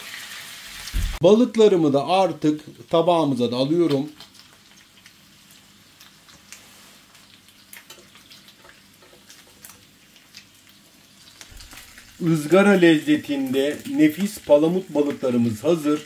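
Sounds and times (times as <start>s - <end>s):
fish sizzling in oil: 0.0s - 1.2s, 2.9s - 16.0s
small pops and crackles: 3.8s - 12.2s.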